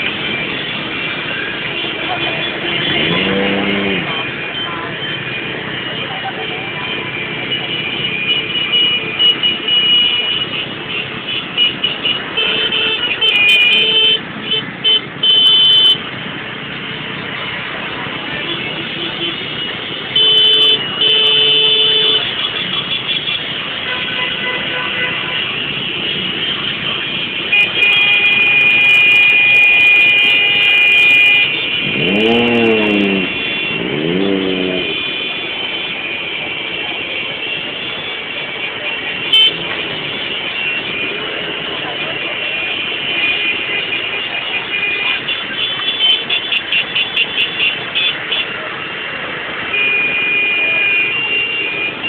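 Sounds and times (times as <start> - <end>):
motorcycle engines running: 0.0 - 7.8, 31.4 - 40.5
motorcycles and cars in traffic: 0.0 - 52.0.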